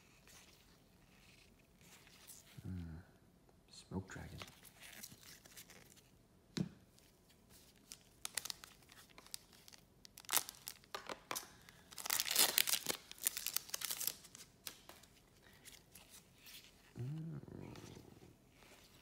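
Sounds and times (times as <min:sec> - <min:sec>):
foil wrapper crinkling and tearing: 0:07.6 - 0:15.1.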